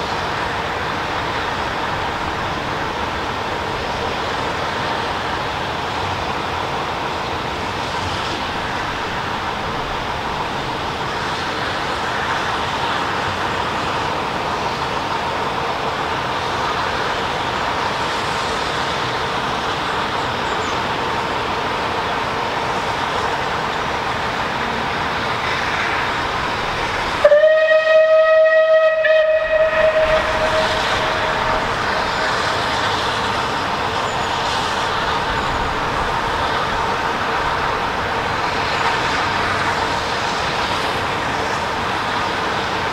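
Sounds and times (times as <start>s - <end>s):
steam locomotive whistle: 27.2s - 33.2s
steady background noise: 29.1s - 42.9s.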